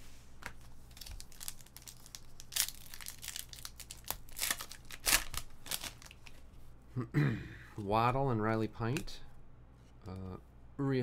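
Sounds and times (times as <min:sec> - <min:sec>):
wrapper crinkling and ripping: 0:00.8 - 0:06.4.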